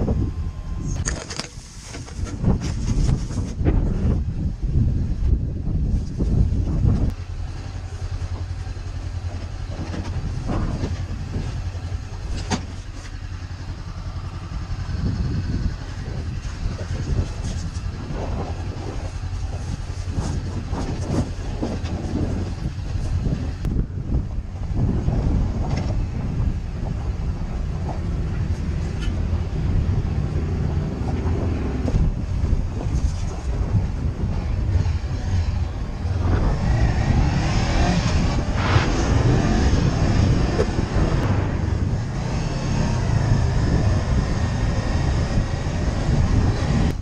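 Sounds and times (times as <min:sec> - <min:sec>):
motorcycle engine running at low revs: 0:00.0 - 0:47.0
gravel clicks and rattles: 0:05.2 - 0:36.9.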